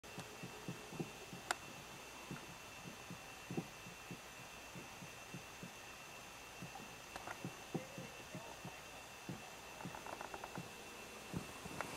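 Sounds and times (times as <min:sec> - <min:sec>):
high-pitched electronic whine: 0:00.0 - 0:11.9
soft low camera thumps: 0:00.2 - 0:05.8.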